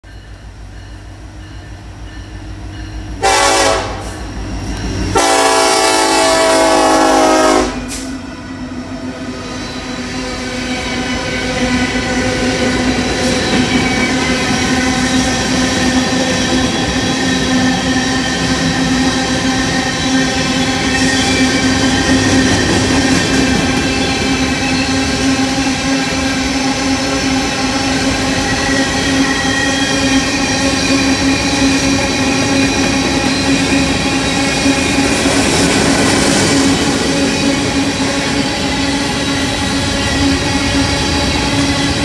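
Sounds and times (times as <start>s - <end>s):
diesel locomotive rumbling: 0.0s - 42.0s
locomotive horn blasts: 3.2s - 4.2s, 5.1s - 8.1s.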